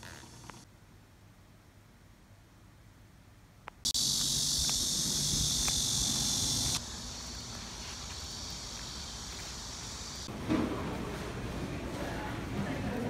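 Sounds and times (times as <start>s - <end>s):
cicadas buzzing: 3.8s - 10.3s.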